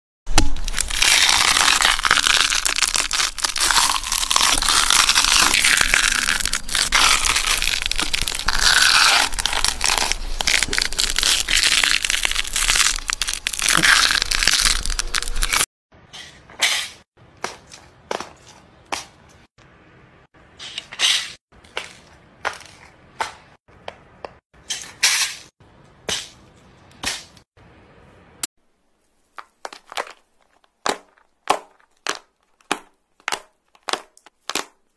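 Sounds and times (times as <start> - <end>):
sharp cracks and snaps: 0.3 - 15.7, 29.3 - 34.9.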